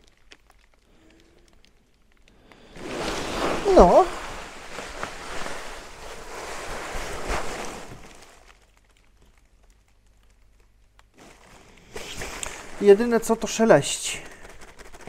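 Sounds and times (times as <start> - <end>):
inflatable sleeping pad rustling: 2.6 - 8.8, 11.2 - 15.0.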